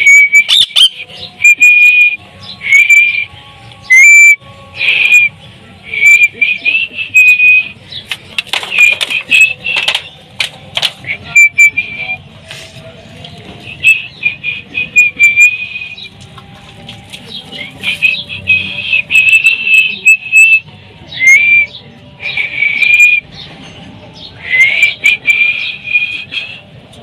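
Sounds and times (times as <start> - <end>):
parakeet whistling calls: 0.0 - 5.3.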